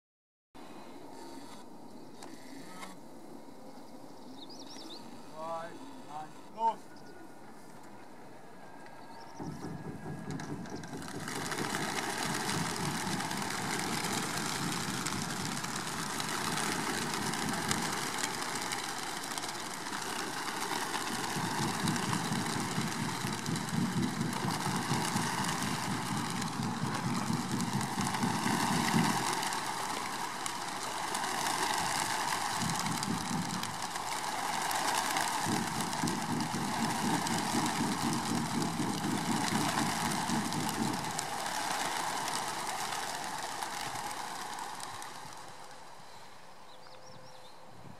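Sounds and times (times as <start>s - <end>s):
flock of pigeons wingbeats: 9.4s - 46.4s.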